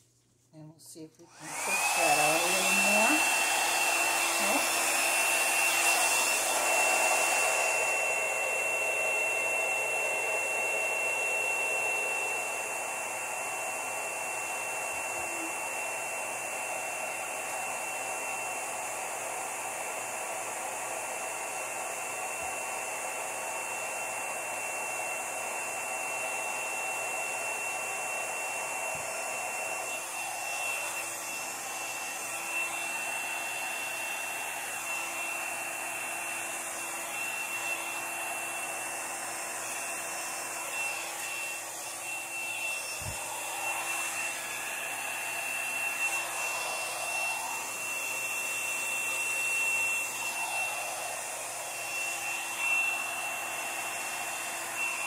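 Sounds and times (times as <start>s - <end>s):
hair dryer blowing with whine: 1.0s - 55.0s.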